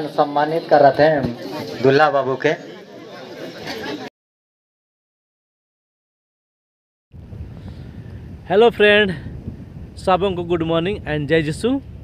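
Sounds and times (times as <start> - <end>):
wind on phone microphone: 7.1 - 12.0.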